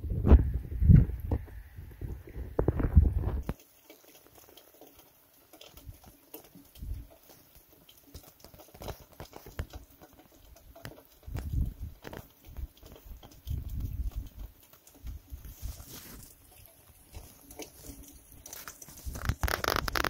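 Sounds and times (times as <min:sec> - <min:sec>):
wind rumbling on microphone: 0:00.0 - 0:03.6, 0:06.7 - 0:07.1, 0:11.2 - 0:17.2, 0:18.9 - 0:20.0
meltwater trickling: 0:00.7 - 0:20.0
small ticks and drips: 0:00.9 - 0:20.0.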